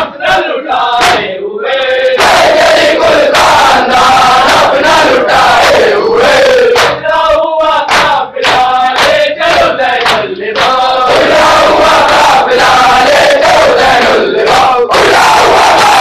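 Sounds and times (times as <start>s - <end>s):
crowd of men chanting: 0.0s - 16.0s
hands striking chests: 6.8s - 7.0s.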